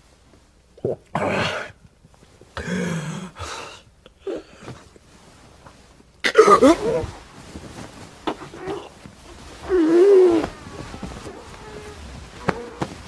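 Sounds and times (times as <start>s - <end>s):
man coughing and wheezing: 6.2s - 7.1s.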